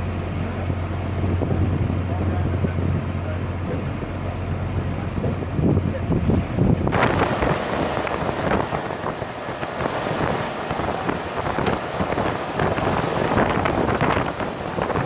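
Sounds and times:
boat engine: 0:00.0 - 0:15.0
wind buffeting microphone: 0:00.0 - 0:15.0
water rushing: 0:06.9 - 0:15.0.

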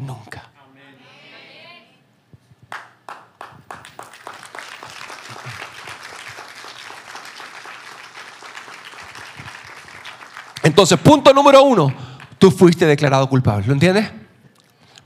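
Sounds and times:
congregation applauding: 0:02.7 - 0:12.6.

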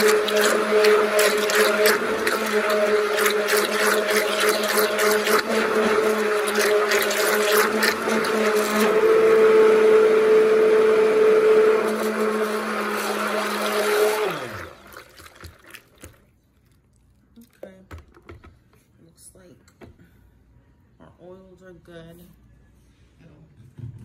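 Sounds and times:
liquid splashing and slapping: 0:00.0 - 0:08.9, 0:13.4 - 0:16.4
stick blender motor hum: 0:00.0 - 0:15.4.

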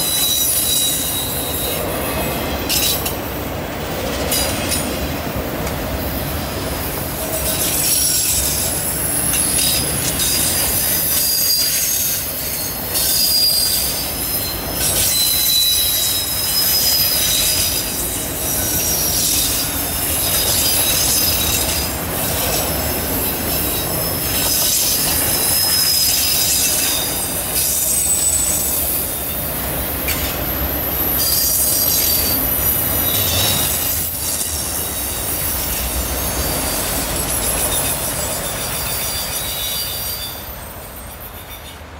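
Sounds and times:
train wheels squealing: 0:00.0 - 0:03.4, 0:04.0 - 0:05.1, 0:05.9 - 0:41.9
train wheels rumbling on track: 0:00.0 - 0:41.9.

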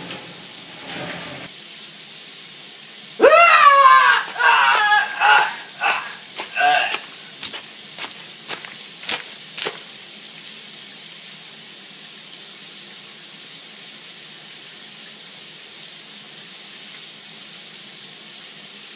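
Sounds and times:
shower spray hissing: 0:00.0 - 0:10.6
person screaming: 0:03.2 - 0:09.2.

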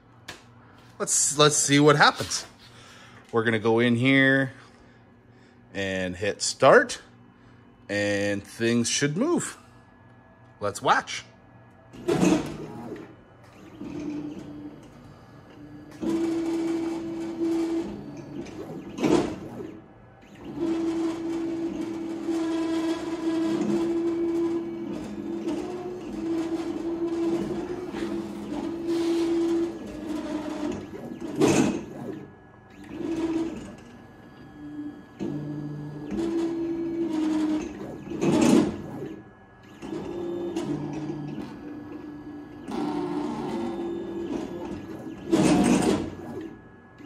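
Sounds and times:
drive motors whining: 0:11.7 - 0:47.0.

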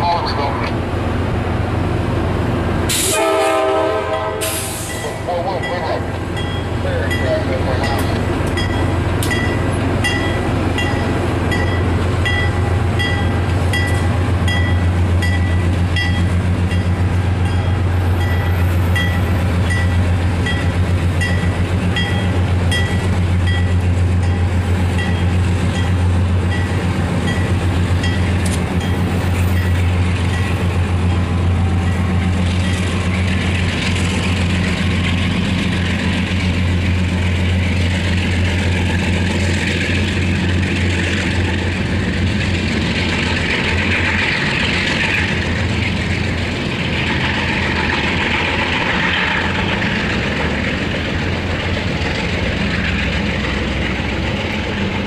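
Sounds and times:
diesel locomotive engine droning: 0:00.0 - 0:55.0
train wheels rolling hiss: 0:02.8 - 0:03.2, 0:04.3 - 0:05.2
train bell dinging: 0:04.1 - 0:33.0.

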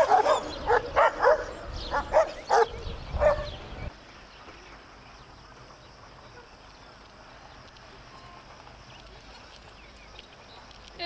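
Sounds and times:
dogs barking: 0:00.0 - 0:03.6.

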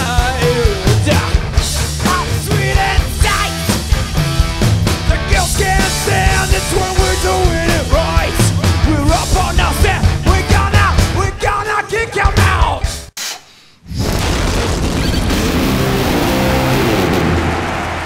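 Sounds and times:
electric guitar: 0:00.0 - 0:11.4, 0:15.0 - 0:17.8
live rock band: 0:00.0 - 0:13.1, 0:15.1 - 0:17.4
drums: 0:00.0 - 0:18.0.

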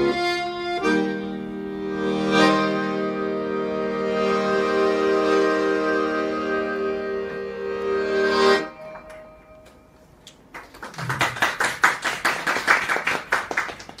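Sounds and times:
accordion chord: 0:00.0 - 0:10.2
audience clapping: 0:10.3 - 0:14.0.

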